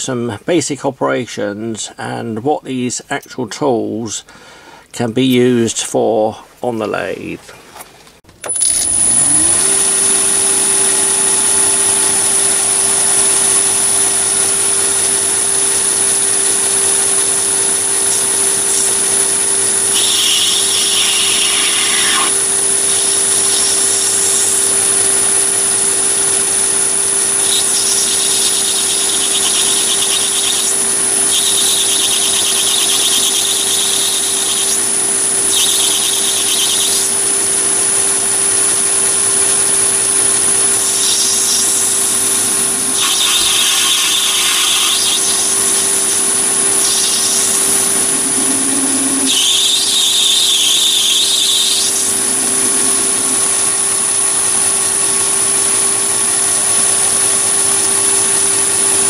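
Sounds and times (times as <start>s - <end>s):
lathe motor whine: 8.4s - 59.0s
lathe tool cutting brass: 8.5s - 54.9s.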